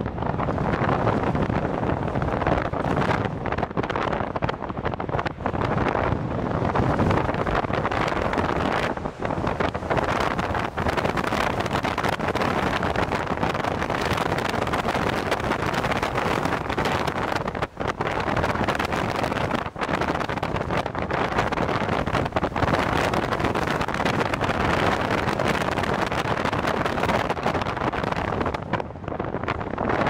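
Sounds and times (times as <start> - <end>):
wind buffeting microphone: 0.0 - 30.0.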